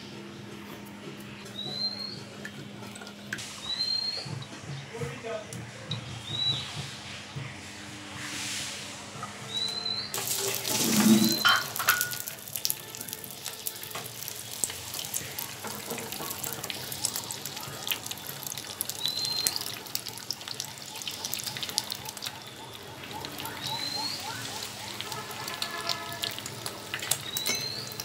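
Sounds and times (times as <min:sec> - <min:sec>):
egg sizzling in hot oil: 0:09.5 - 0:28.0.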